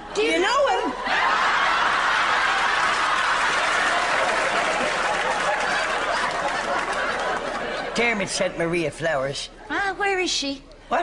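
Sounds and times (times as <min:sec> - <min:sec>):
audience laughing: 0:01.0 - 0:08.2
audience applauding: 0:01.3 - 0:07.8.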